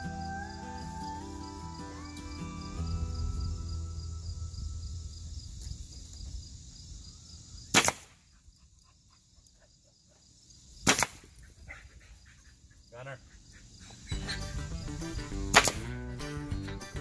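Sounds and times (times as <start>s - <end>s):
nail gun firing into wood: 7.7s - 8.2s, 10.9s - 11.2s, 15.5s - 15.9s.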